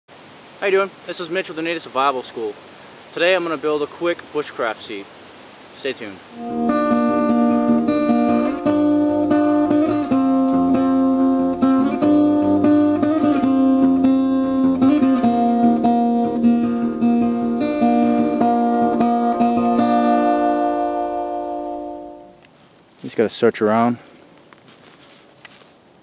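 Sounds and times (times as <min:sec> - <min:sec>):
acoustic guitar music: 0:06.3 - 0:22.4.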